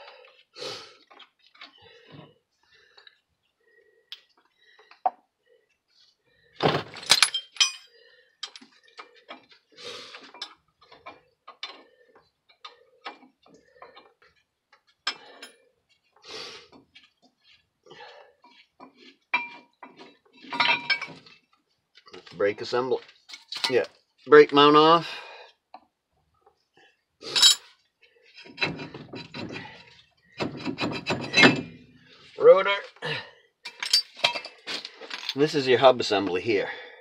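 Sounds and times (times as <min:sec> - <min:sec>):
metal tool clinks: 0:07.0 - 0:08.6, 0:20.5 - 0:21.2, 0:27.3 - 0:27.7, 0:33.7 - 0:35.4.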